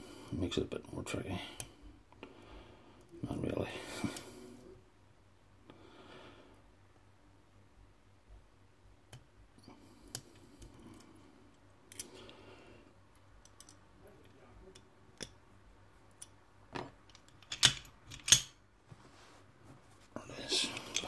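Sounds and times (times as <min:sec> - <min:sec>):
lock pick clicking in padlock: 0:17.2 - 0:18.5.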